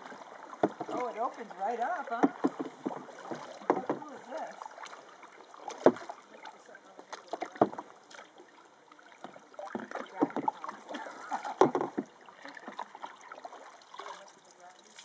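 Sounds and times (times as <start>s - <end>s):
paddle splashing in water: 0.0s - 15.0s
sharp knocks: 11.6s - 12.1s.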